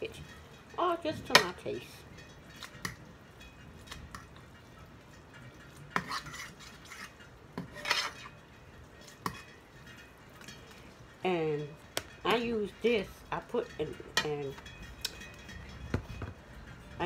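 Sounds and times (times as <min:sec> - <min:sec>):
utensil clinking and scraping a pan: 0:00.0 - 0:17.0.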